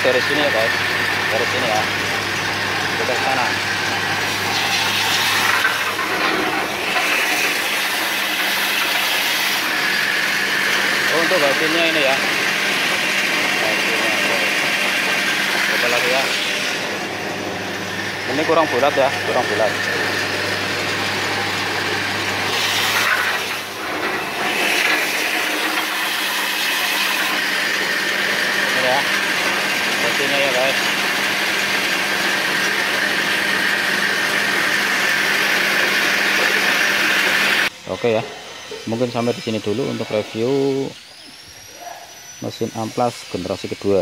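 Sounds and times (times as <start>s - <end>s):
electric motor running: 0.0s - 44.0s
sanding belt hissing on wood: 28.3s - 44.0s.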